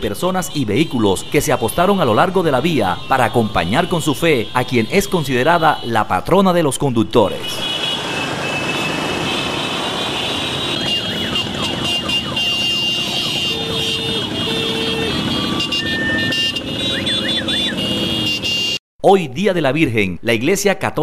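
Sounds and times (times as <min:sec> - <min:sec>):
horns honking: 0:00.0 - 0:06.1, 0:07.3 - 0:18.8
siren-like sweeping tones: 0:07.6 - 0:18.6
motorcycle and car engines running: 0:07.8 - 0:18.6.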